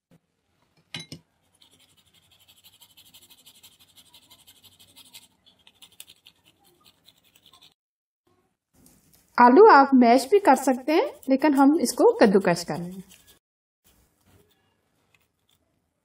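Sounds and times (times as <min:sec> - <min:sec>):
potato rasping on metal grater: 0:01.4 - 0:07.8, 0:10.2 - 0:13.4.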